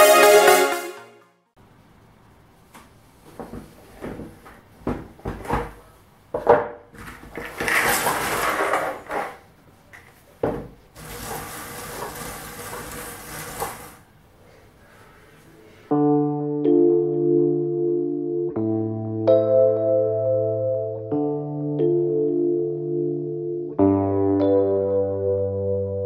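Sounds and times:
puzzle pieces pouring onto table: 7.4 - 9.4.

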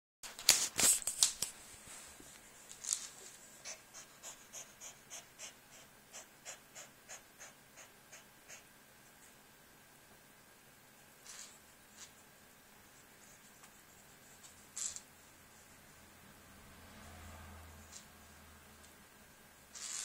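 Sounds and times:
cat panting: 3.3 - 8.8.

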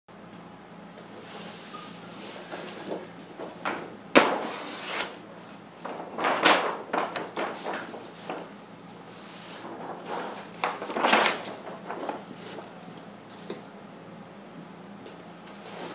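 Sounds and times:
paper sheets rustling: 2.2 - 13.6.

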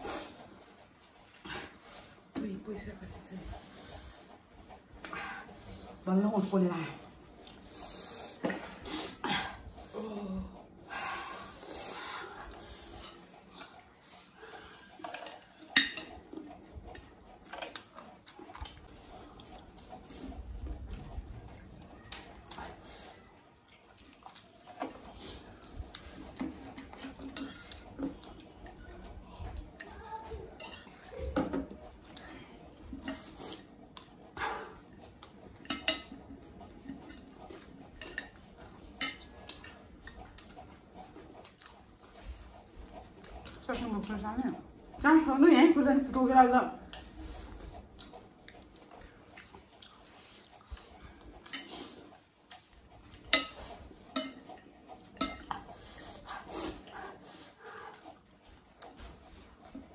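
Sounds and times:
chewing mouth sounds: 11.9 - 45.0, 46.8 - 59.9
metal spoons clinking on glass plates: 55.2 - 55.5.

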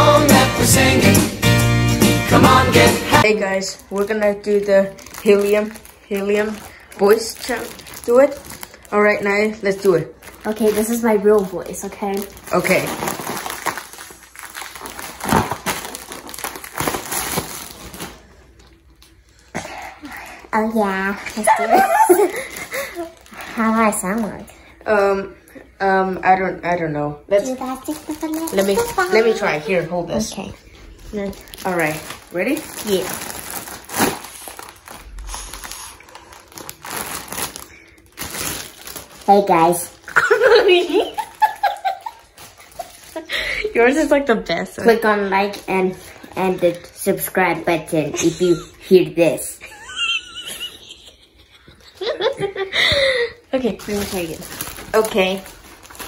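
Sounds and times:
foil balloon crinkling: 3.2 - 19.3, 21.1 - 24.4, 27.3 - 30.3, 30.9 - 44.1, 53.5 - 56.0.

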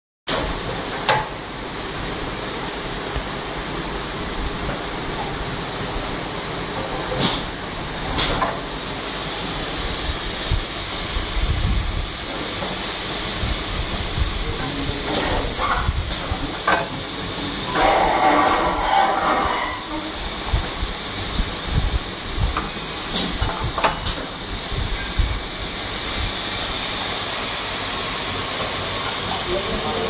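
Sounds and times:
compressed air hissing: 7.2 - 30.0.

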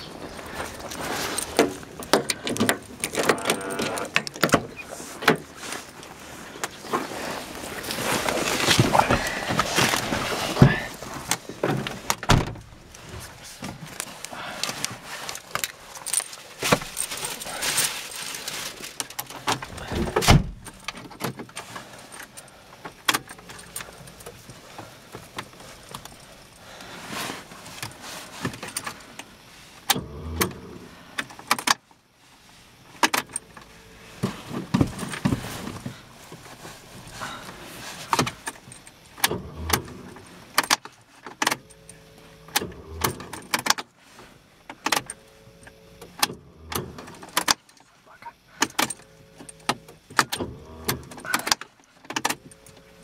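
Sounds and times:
clicks and knocks in car cabin: 1.5 - 5.5, 32.9 - 36.6, 48.4 - 52.8
keys jangling: 13.9 - 19.8.

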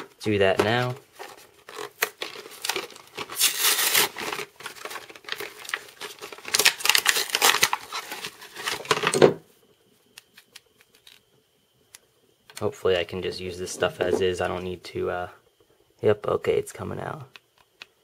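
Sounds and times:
blister packaging crinkling and tearing: 0.7 - 9.2.

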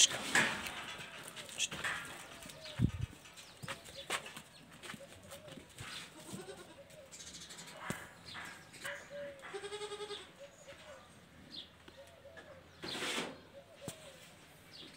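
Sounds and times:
goat kid bleating: 6.1 - 6.8, 9.4 - 10.4.

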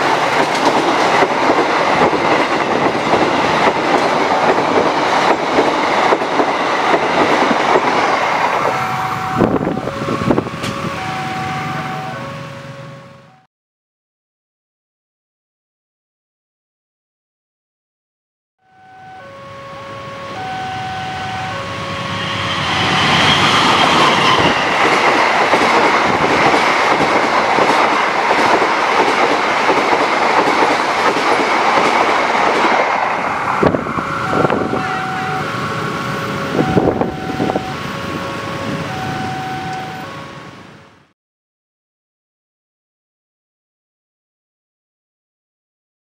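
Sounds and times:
wheels clattering over rail joints: 0.0 - 8.8, 23.0 - 37.1
train wheels rushing on rails: 0.0 - 12.7, 21.2 - 40.8
two-tone crossing bell: 8.6 - 13.5, 18.6 - 23.4, 34.2 - 35.6, 36.5 - 40.4.

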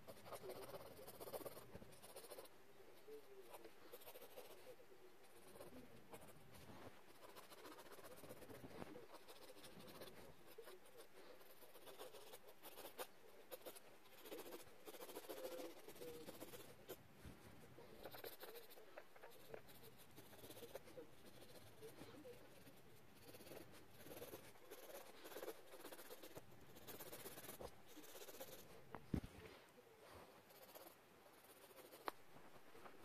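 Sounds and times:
pencil scratching on paper: 0.0 - 28.8, 30.4 - 32.2.

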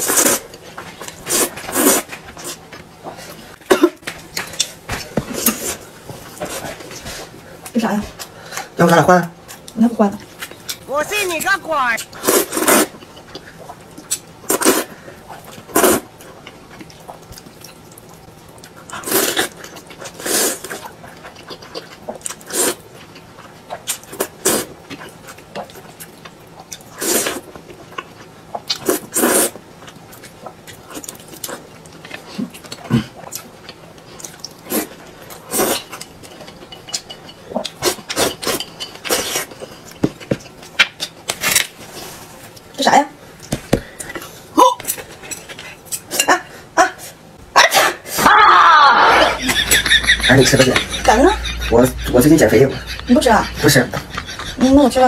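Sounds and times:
person slurping noodles: 1.2 - 2.6, 12.2 - 13.0, 15.7 - 16.1, 18.9 - 19.6, 20.2 - 20.8, 24.2 - 24.7, 28.8 - 29.6.

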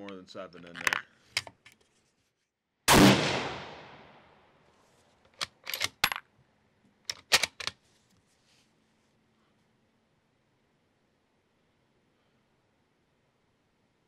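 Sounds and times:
rifle shot: 2.9 - 4.4
rifle bolt clicks: 5.3 - 6.1, 7.1 - 7.8.

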